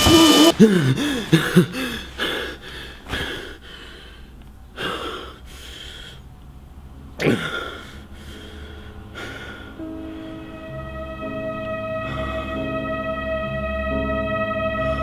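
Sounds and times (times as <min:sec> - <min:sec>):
man groaning: 0:00.0 - 0:01.8
man breathing heavily: 0:00.0 - 0:06.4, 0:07.2 - 0:10.7.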